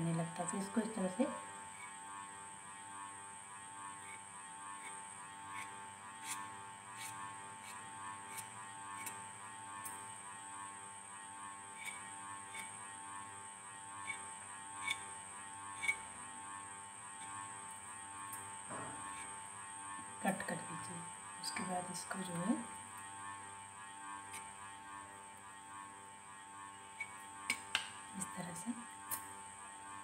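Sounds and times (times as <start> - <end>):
steady electrical hum: 0.0 - 30.0
knife tip tapping stone counter: 27.0 - 28.0.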